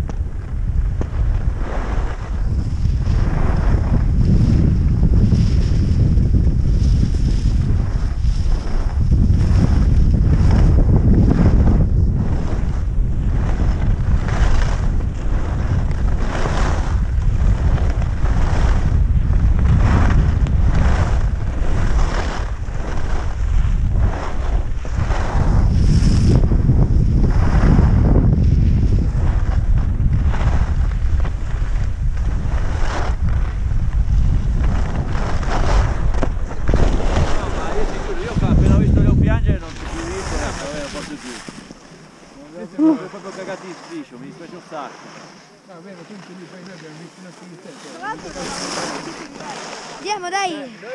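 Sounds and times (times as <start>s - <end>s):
wind buffeting microphone: 0.0s - 42.5s
skis hissing on snow: 20.8s - 26.3s, 34.4s - 38.8s, 39.6s - 50.9s.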